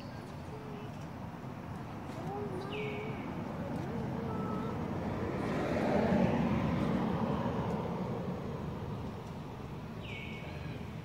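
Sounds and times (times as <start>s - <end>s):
vehicle passing by: 3.0s - 9.7s.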